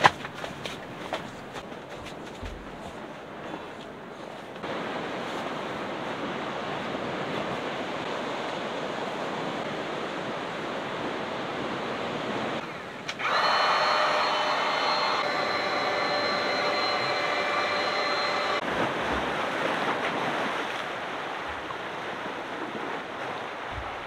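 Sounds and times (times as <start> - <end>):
electric air pump humming: 13.1 - 18.6.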